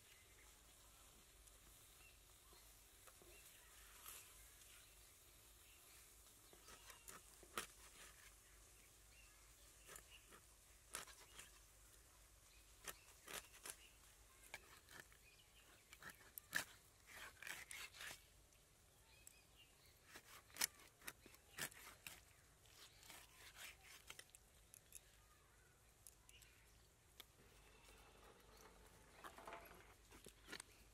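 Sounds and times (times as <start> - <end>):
fish scraping and crunching on blade: 6.6 - 8.3, 9.8 - 11.6, 12.8 - 18.2, 20.0 - 25.0.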